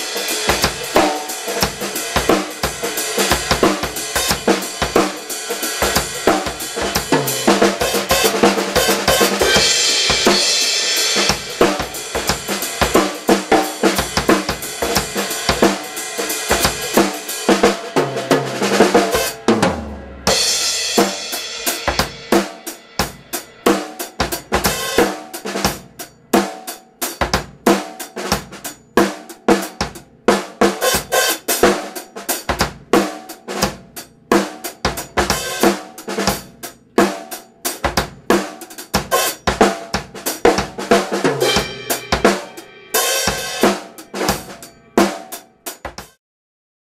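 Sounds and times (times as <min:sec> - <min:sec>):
drum kit funk groove: 0:00.0 - 0:46.2.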